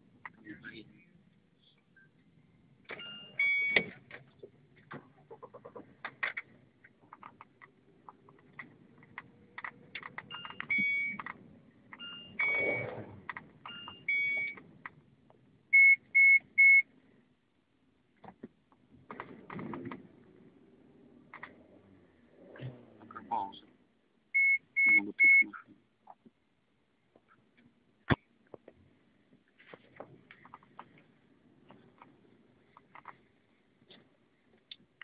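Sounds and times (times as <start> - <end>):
short electronic beeps: 3.0 - 3.9, 10.3 - 11.2, 12.0 - 13.0, 13.7 - 14.6, 24.4 - 25.7
loud identical beeps: 24.4 - 25.6.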